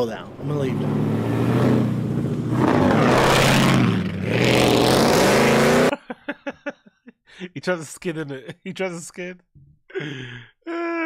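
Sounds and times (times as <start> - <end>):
truck engine revving: 0.2 - 5.9.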